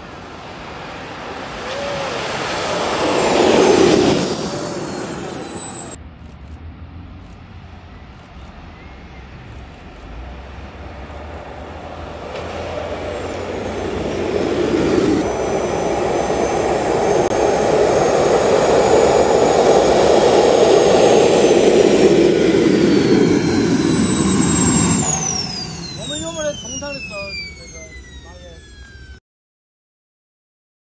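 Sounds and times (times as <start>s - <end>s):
model jet engine whine: 0.0s - 6.0s, 9.5s - 29.2s.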